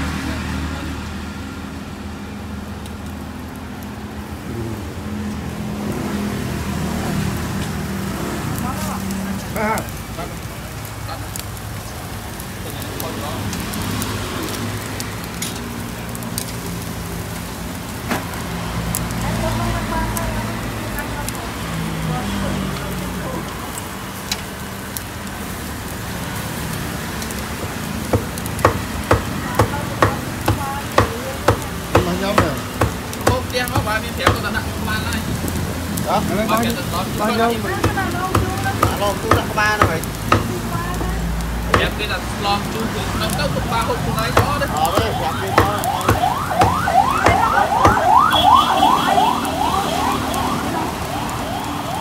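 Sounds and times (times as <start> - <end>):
meat sizzling on a grill: 0.0 - 52.0
siren yelping: 44.4 - 52.0.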